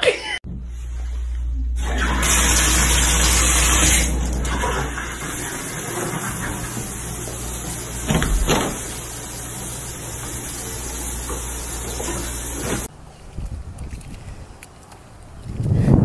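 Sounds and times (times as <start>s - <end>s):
water running from faucet: 1.8s - 12.9s.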